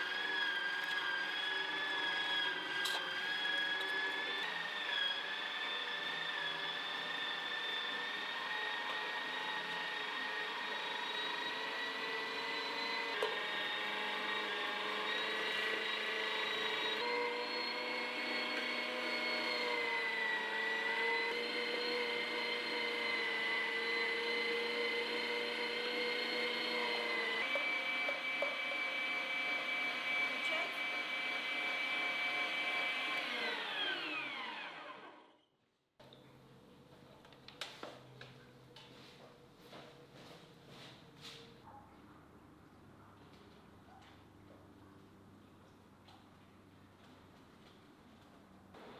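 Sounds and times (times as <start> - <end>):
meat grinder motor whining: 0.0 - 35.5.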